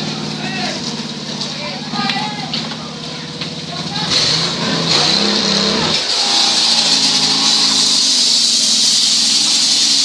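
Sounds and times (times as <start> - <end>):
large fire hissing: 5.8 - 10.0.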